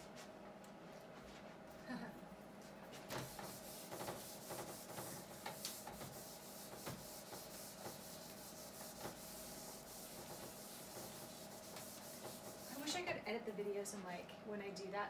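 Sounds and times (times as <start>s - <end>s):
eraser scrubbing whiteboard: 3.0s - 13.1s.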